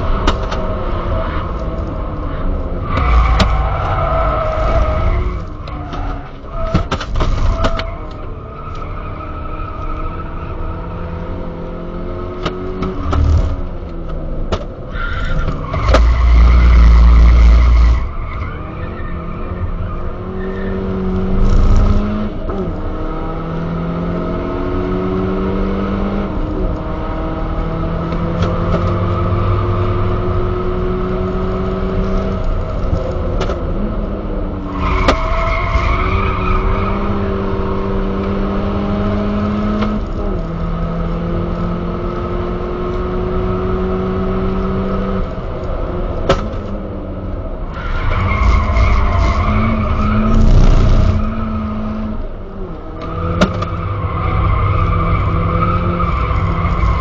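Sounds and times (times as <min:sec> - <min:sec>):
car engine revving through upshifts: 0:00.0 - 0:57.0.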